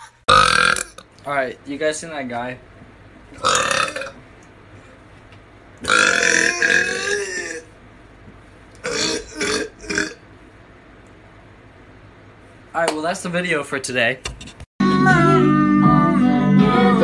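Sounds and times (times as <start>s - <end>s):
man burping: 0.3s - 1.0s, 3.4s - 4.2s, 5.8s - 7.7s, 8.8s - 10.2s.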